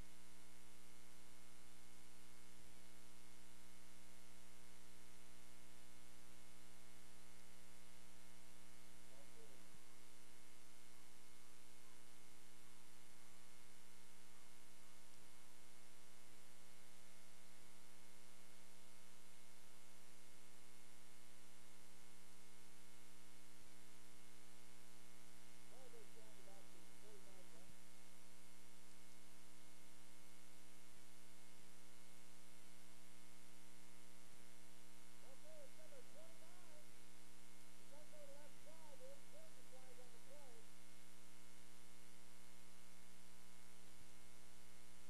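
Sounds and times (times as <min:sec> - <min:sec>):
electrical hum and buzz: 0:00.0 - 0:45.0
faint voice: 0:09.1 - 0:09.6, 0:25.6 - 0:27.8, 0:35.2 - 0:37.0, 0:37.8 - 0:40.7.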